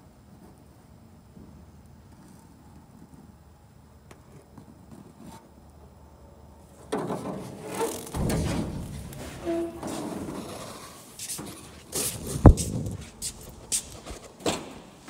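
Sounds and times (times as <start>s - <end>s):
short squeak: 7.6s - 11.0s.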